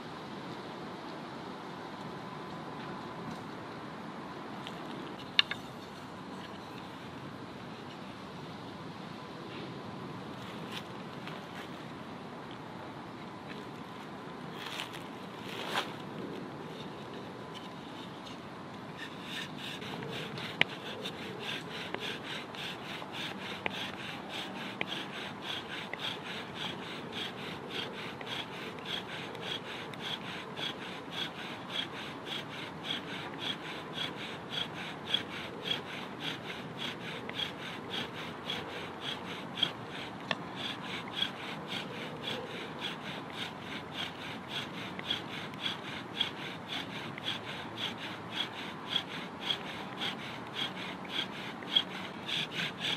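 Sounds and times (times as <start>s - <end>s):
bow drill rasping friction: 16.7s - 52.9s.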